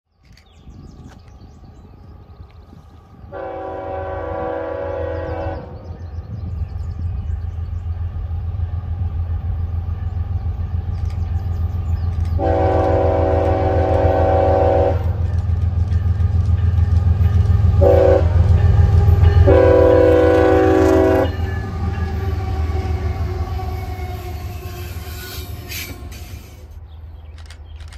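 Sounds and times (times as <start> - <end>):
train rumble: 0.2 - 27.9
locomotive air horn blasts: 3.3 - 5.8, 12.4 - 15.3, 17.8 - 18.7, 19.4 - 21.5.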